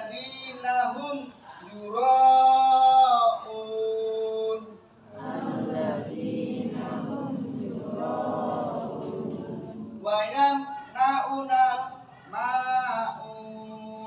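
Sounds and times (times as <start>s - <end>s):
group reciting in unison: 4.5s - 14.0s.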